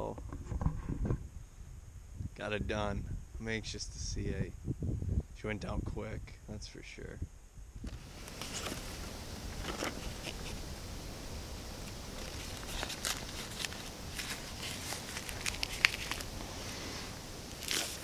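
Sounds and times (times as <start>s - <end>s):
steady low rumble: 1.2s - 18.0s
paper tag crinkling: 7.9s - 10.7s, 11.6s - 18.0s.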